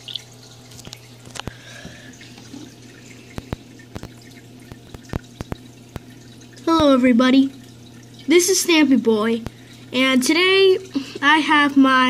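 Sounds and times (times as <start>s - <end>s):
low electrical hum: 0.0s - 12.0s
water trickling and dripping: 0.0s - 12.0s.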